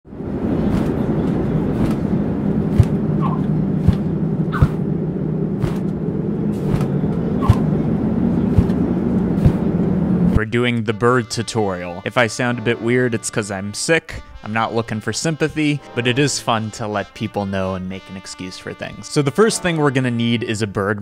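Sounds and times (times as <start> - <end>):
wind rushing: 0.0 - 10.4
large bird wingbeats: 0.5 - 4.9, 5.5 - 7.8, 8.4 - 9.8.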